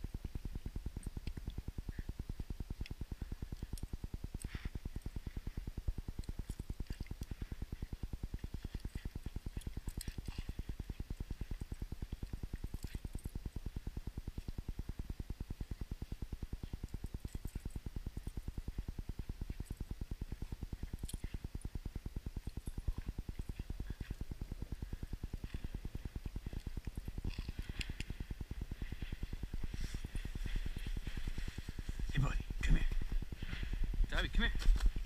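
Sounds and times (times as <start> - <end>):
rapid low pulsing: 0.0 - 35.0
dogs scuffling in snow: 27.6 - 32.2.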